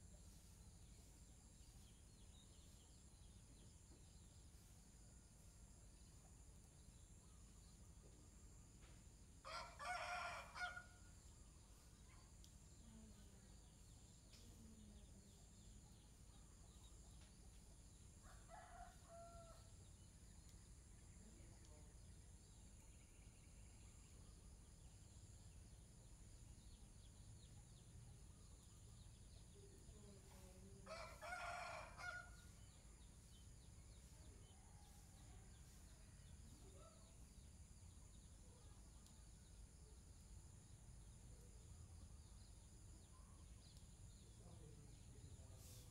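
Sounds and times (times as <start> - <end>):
rooster crowing: 9.4 - 10.9, 30.8 - 32.4.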